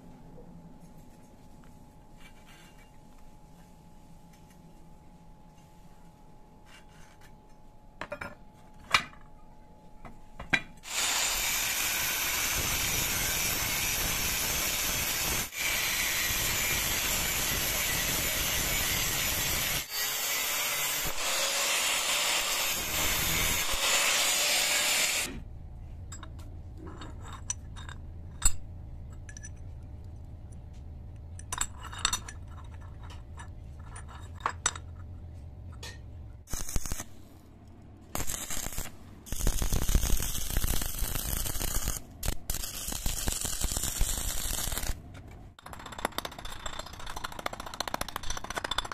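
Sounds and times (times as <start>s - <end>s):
angle grinder cutting steel: 10.8s - 25.3s
steel pieces clicking and tapping: 26.1s - 29.7s, 31.4s - 35.0s, 39.8s - 48.9s.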